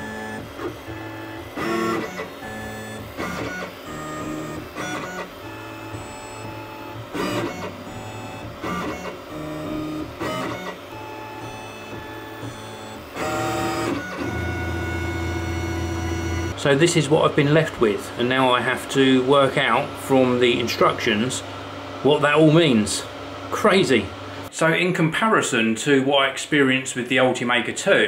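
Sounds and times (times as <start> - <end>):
stepper motors whining: 0.0 - 21.0.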